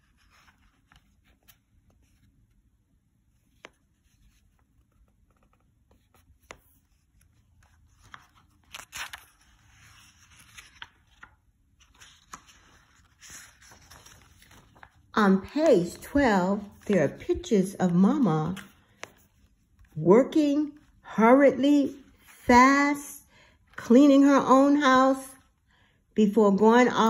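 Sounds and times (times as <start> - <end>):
paper pages rustling: 0.0 - 2.7, 3.3 - 20.0.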